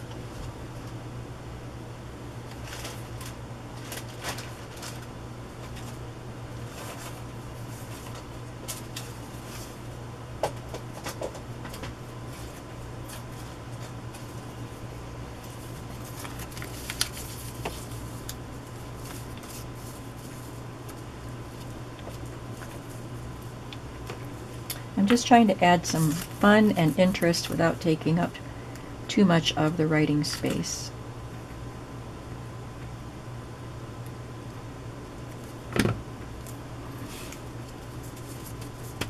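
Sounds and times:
steady low hum: 0.0s - 39.0s
paper rustling and tapping: 16.0s - 18.4s.

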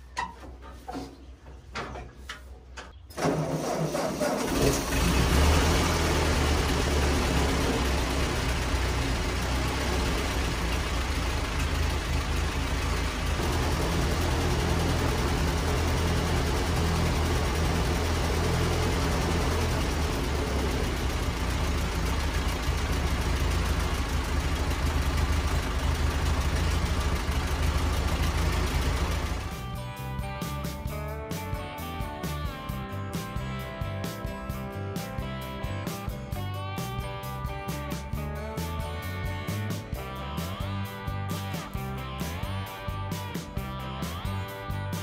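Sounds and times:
tractor engine idling: 0.0s - 30.9s.

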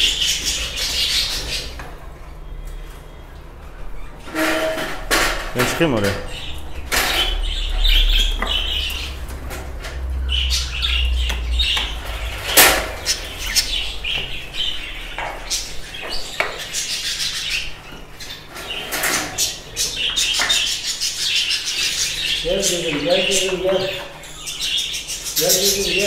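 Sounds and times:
budgerigars chirping: 0.0s - 1.8s, 5.6s - 26.0s
low rumble of handling noise: 0.8s - 16.4s.

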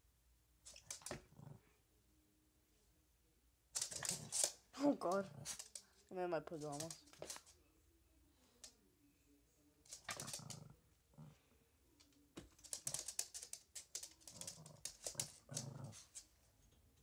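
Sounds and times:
small dog growling: 0.9s - 1.8s, 3.9s - 5.7s, 9.9s - 11.5s, 14.0s - 16.3s
claws clicking on wooden floor: 3.8s - 5.9s, 12.0s - 16.0s.

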